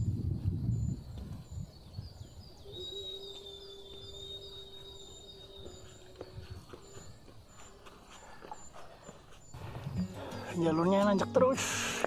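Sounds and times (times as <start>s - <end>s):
bird chirping: 0.0s - 12.0s
high whistling tone: 2.6s - 7.8s.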